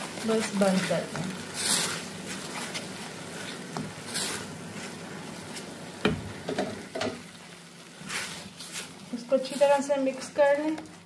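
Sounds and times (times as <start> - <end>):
light sizzling: 0.0 - 11.0
spatula scraping a pan: 0.2 - 5.7, 7.8 - 10.4.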